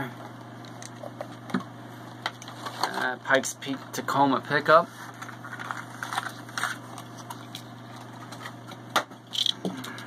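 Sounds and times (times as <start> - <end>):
steady low hum: 0.0 - 10.0
plastic packaging rustling: 5.0 - 8.7.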